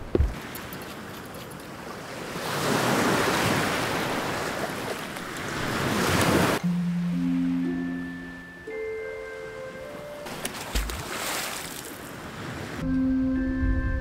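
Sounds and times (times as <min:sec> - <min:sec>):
waves washing onto sand: 0:00.3 - 0:06.6, 0:10.3 - 0:12.8.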